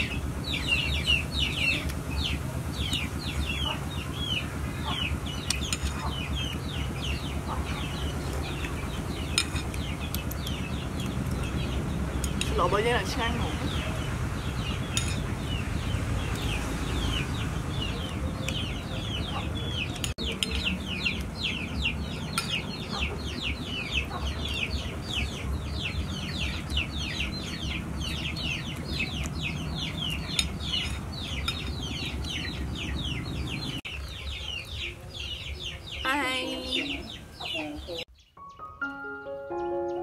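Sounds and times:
chicks peeping: 0.0s - 38.7s.

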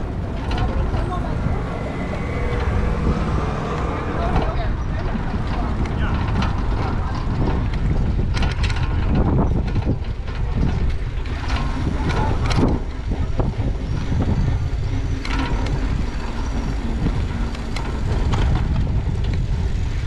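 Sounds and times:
wind rumble on microphone: 0.0s - 20.0s
high squeal: 1.2s - 5.4s
bike knocks and rattles: 4.4s - 20.0s.

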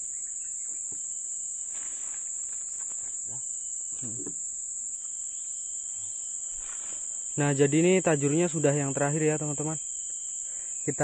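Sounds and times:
crickets droning: 0.0s - 11.0s
faint rustling: 1.6s - 3.4s, 6.4s - 7.4s.

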